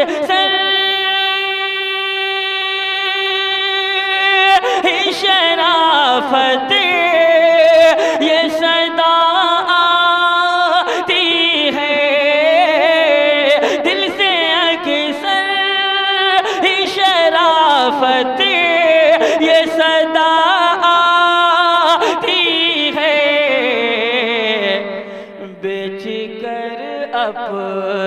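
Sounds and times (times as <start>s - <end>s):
man singing solo: 0.0s - 28.0s.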